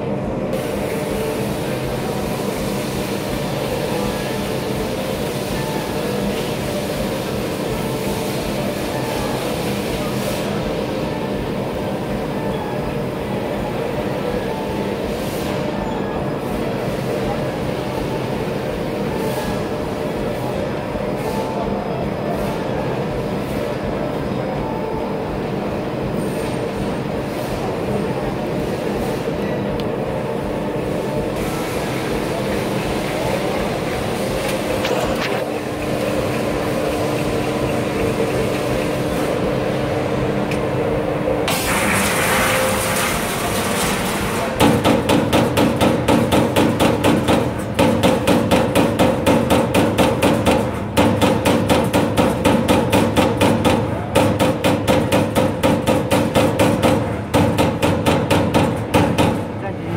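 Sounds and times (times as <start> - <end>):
machine and hall hum: 0.0 - 59.9
punch press hitting sheet metal: 43.8 - 59.6.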